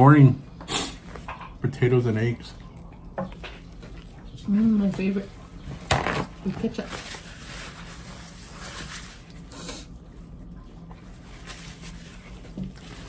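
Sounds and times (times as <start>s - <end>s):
low steady hum: 0.0s - 13.0s
people chewing food: 0.6s - 5.8s, 8.1s - 13.0s.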